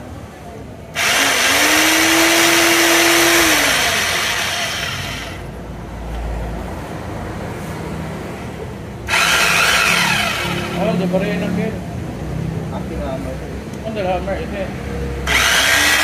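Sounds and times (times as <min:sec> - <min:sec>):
demolition hammer motor whine: 0:01.0 - 0:05.5, 0:09.1 - 0:10.8, 0:15.2 - 0:16.0.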